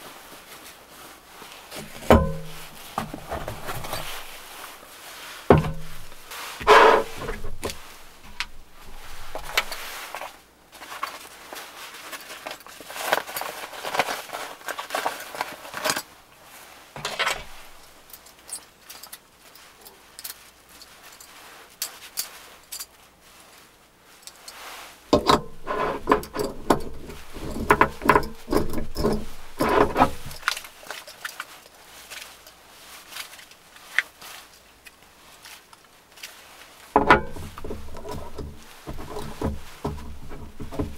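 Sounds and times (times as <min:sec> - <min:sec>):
cloth pouch rustling: 0:00.0 - 0:16.7.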